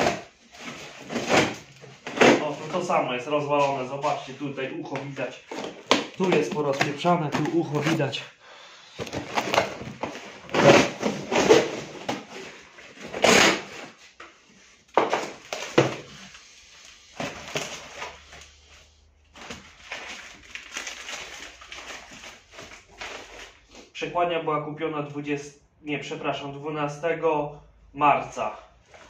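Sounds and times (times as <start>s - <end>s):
cardboard ripping and tearing: 0.0s - 2.9s, 9.1s - 14.0s
wrapping rustling: 15.3s - 23.9s.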